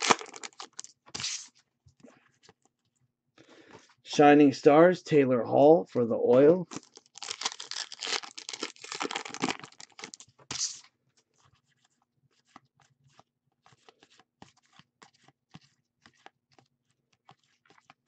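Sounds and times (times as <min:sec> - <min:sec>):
foil pack tearing and crinkling: 0:00.0 - 0:01.5, 0:06.7 - 0:10.9.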